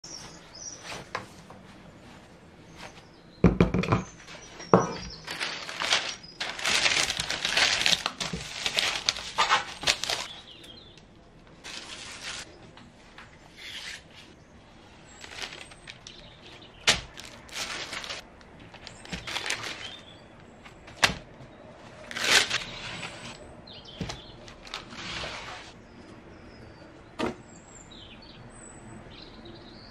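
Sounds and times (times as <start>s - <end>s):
knocks on baking tray: 3.4s - 4.1s
plastic film and paper crinkling: 5.0s - 10.6s, 11.5s - 12.5s, 14.0s - 25.8s.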